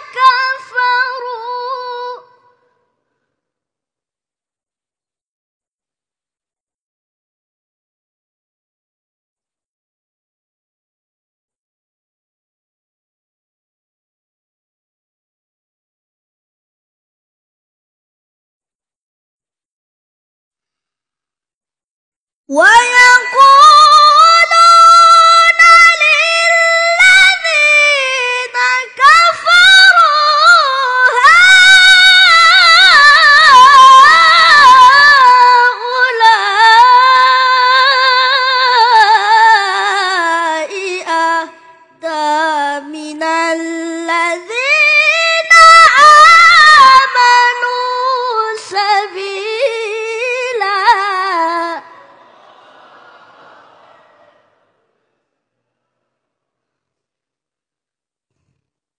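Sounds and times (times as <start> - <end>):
boy reciting melodically: 0.0 - 2.3, 22.5 - 51.8.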